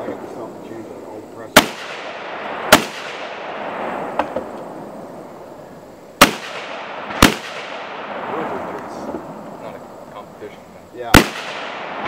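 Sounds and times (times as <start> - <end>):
rifle shots with echo: 1.5 - 4.8, 6.2 - 9.4, 11.1 - 12.0
faint pops: 2.7 - 4.7.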